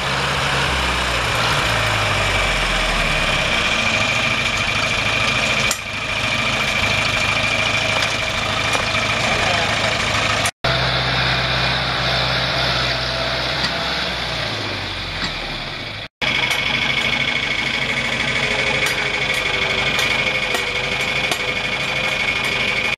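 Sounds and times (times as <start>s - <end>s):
tractor engine running: 0.0s - 22.9s
high whine: 14.8s - 22.9s.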